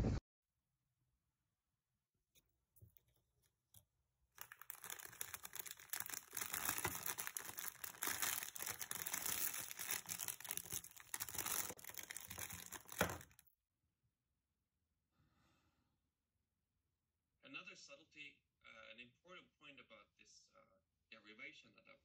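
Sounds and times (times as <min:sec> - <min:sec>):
plastic bag crinkling: 0:04.4 - 0:13.4.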